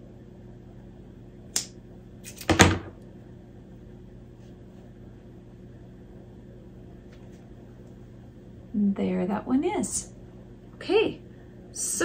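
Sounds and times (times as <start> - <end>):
faint steady hum: 0.0 - 12.0
scissors clattering on mat: 2.2 - 2.7.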